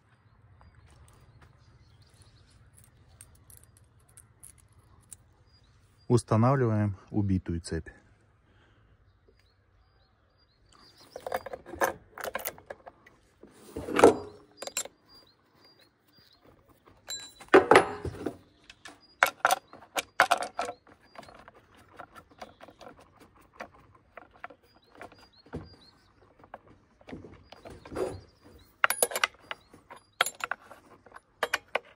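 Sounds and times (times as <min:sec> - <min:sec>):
small metal clicks and knocks: 0:02.2 - 0:05.3, 0:10.9 - 0:13.2, 0:13.9 - 0:15.3, 0:16.4 - 0:31.9
saw chain clinking and rattling: 0:11.1 - 0:12.9, 0:14.0 - 0:15.0, 0:17.0 - 0:18.3, 0:19.2 - 0:22.9, 0:27.5 - 0:31.9.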